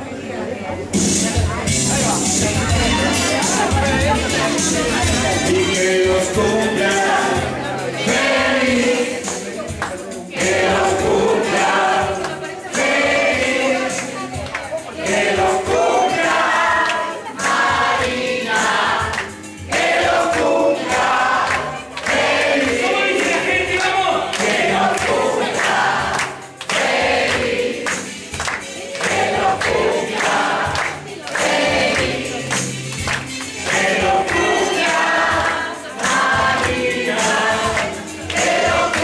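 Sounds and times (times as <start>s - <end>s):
group of people singing: 2.2s - 39.0s
hands clapping: 9.2s - 10.2s, 12.2s - 12.9s, 13.8s - 14.9s, 16.8s - 39.0s.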